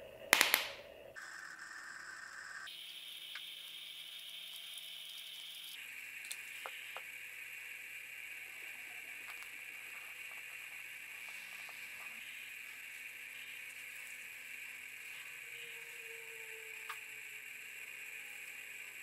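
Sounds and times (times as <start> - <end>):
high hiss: 1.2 - 19.0.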